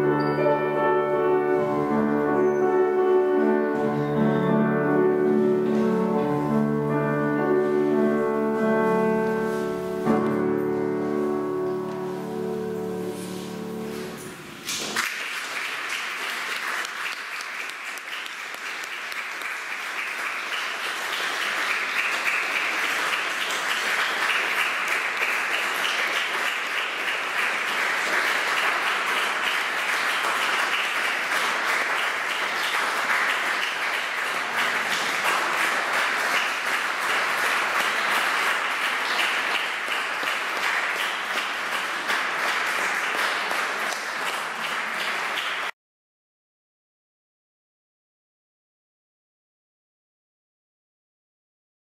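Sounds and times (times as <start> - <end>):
audience applauding: 14.7 - 45.8.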